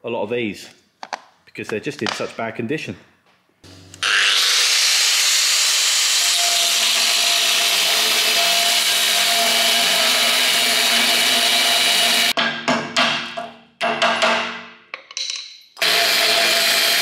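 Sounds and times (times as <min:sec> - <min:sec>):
angle grinder grinding steel: 0:03.7 - 0:12.4, 0:15.8 - 0:17.0.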